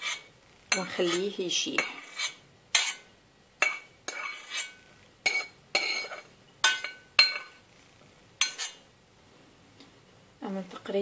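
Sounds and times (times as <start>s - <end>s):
metal spoon scraping a saucepan: 0.0s - 7.6s, 8.4s - 8.8s.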